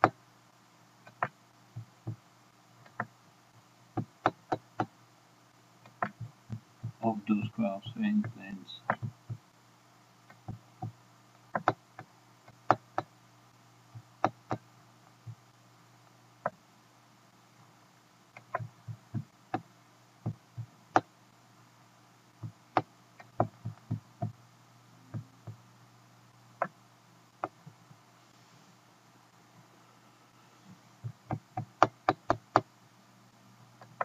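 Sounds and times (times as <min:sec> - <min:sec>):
faint steady hum: 0:00.0 - 0:34.0
computer mouse clicks: 0:01.1 - 0:02.2, 0:02.8 - 0:03.1, 0:05.8 - 0:06.3, 0:08.2 - 0:09.4, 0:11.5 - 0:13.1.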